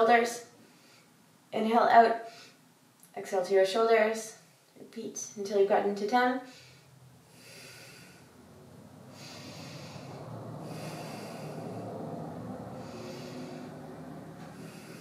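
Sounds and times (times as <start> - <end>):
person breathing through nose: 6.5 - 8.4, 9.1 - 15.0.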